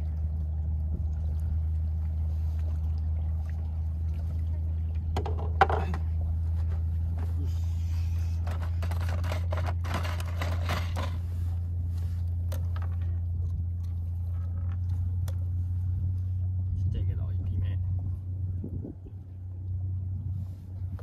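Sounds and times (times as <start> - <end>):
boat engine droning: 0.0 - 21.0
scraping and rustling handling: 6.4 - 13.2.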